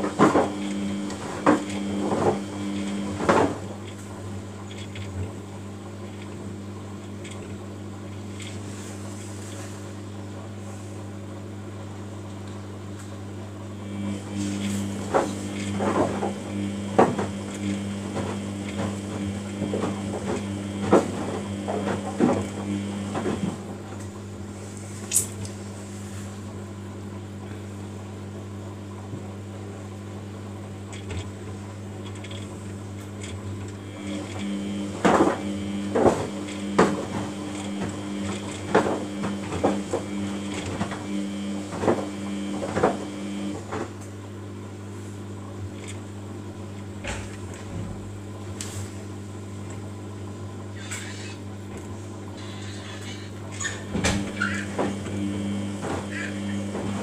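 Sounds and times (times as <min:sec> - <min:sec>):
washing machine motor hum: 0:00.0 - 0:57.0
washing machine knocks and clunks: 0:53.8 - 0:57.0.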